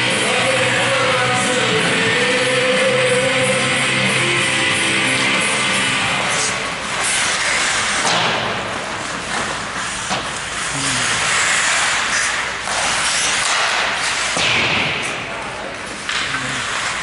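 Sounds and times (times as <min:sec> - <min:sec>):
skate blades scraping on ice: 0:05.1 - 0:14.4, 0:15.8 - 0:17.0
sticks and puck clacking: 0:05.1 - 0:17.0.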